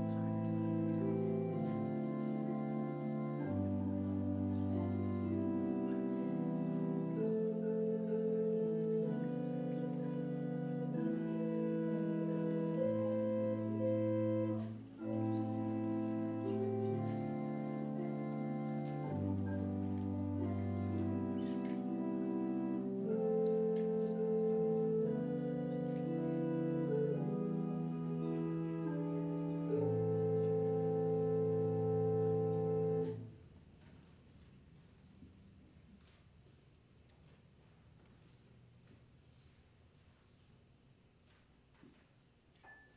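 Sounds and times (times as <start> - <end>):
church organ playing chords: 0.0 - 33.3.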